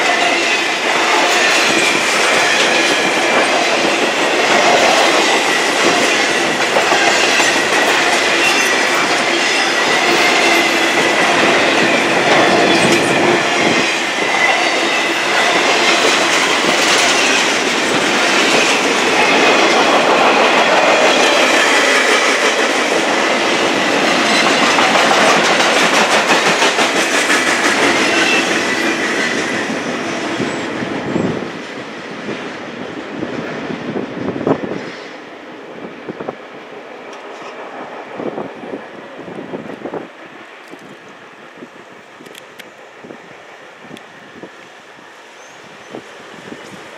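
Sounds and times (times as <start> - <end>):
train wheels rolling on rails: 0.0 - 46.9.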